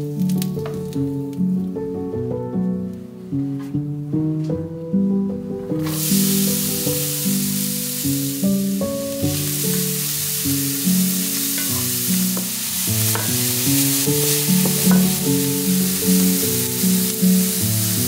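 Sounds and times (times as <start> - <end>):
soft background music: 0.0 - 18.0
onion sizzling in hot oil: 5.8 - 18.0
wooden spatula scraping pan: 11.6 - 15.6.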